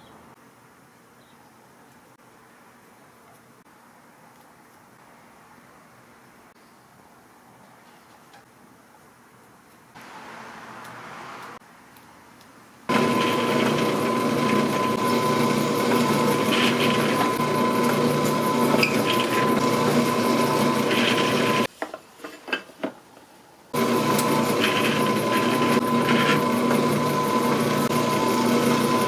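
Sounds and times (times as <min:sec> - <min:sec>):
electric drill boring metal: 0:12.9 - 0:21.7, 0:23.8 - 0:29.0.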